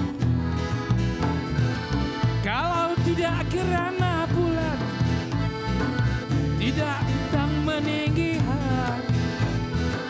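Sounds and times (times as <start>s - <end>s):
accordion playing melody: 0.0s - 10.0s
bass guitar: 0.0s - 10.0s.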